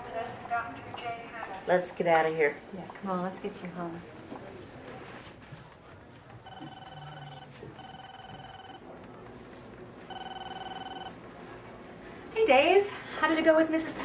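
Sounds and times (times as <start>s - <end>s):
electronic telephone ringing: 6.4s - 8.9s, 10.1s - 11.2s.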